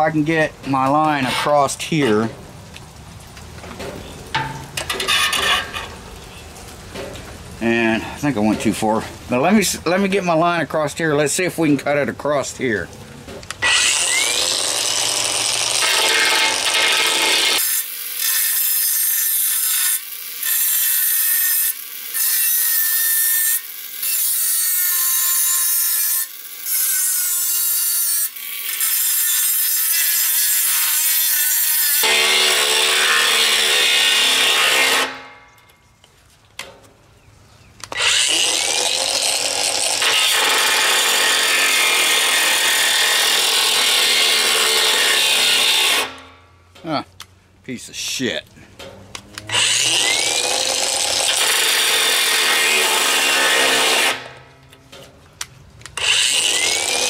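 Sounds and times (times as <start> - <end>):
angle grinder cutting steel: 4.4 - 5.9, 13.6 - 35.4, 37.9 - 46.3, 49.4 - 54.4, 56.0 - 57.0.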